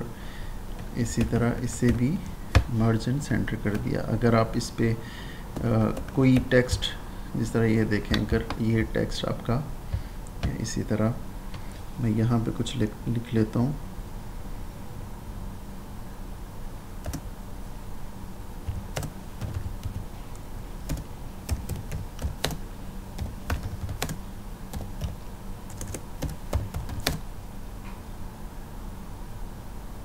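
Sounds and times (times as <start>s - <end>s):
low steady hum: 0.0s - 30.0s
typing on computer keyboard: 1.0s - 2.7s, 10.4s - 10.6s, 17.0s - 17.3s, 18.7s - 20.1s, 20.8s - 22.6s, 23.2s - 27.2s.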